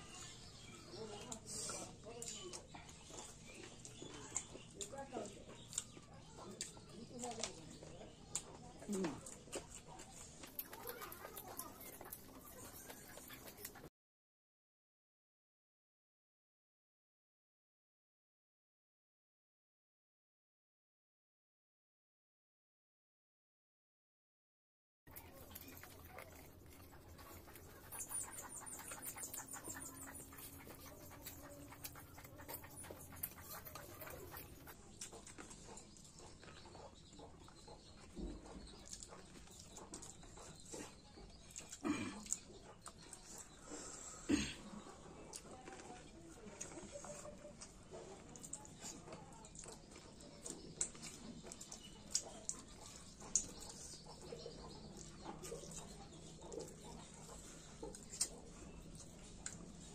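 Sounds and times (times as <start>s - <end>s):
wet chewing and lip smacking: 0.0s - 13.9s, 25.1s - 59.9s
wet mouth clicks: 50.4s - 54.3s, 56.6s - 59.8s.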